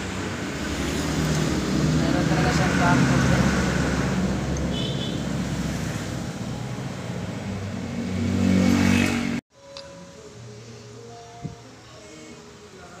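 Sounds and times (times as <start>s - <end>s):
vehicle engine droning: 0.0s - 9.4s.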